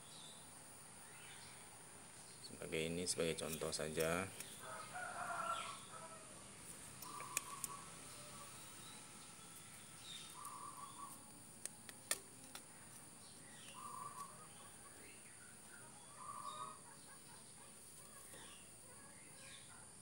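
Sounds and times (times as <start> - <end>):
chicken calls: 4.6 - 11.3, 13.6 - 19.5
plastic netting needle clicks: 11.6 - 12.7.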